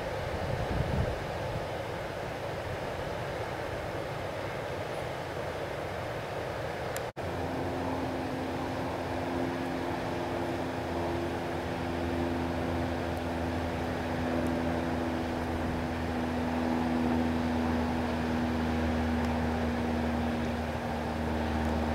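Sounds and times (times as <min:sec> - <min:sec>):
mechanical motor drone: 0:07.2 - 0:21.9.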